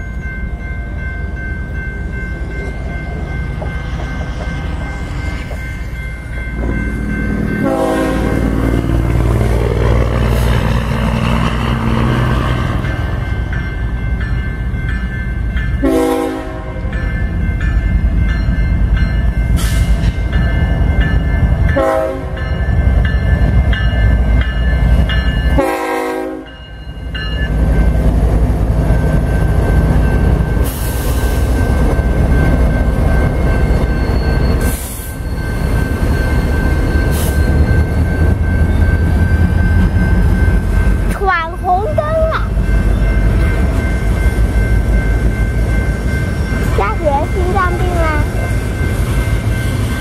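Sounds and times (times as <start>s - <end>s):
crossing bell ringing: 0.0s - 50.0s
train rumbling past: 0.0s - 50.0s
train horn blasts: 7.6s - 8.8s, 15.8s - 16.9s, 21.8s - 22.4s, 25.6s - 26.6s.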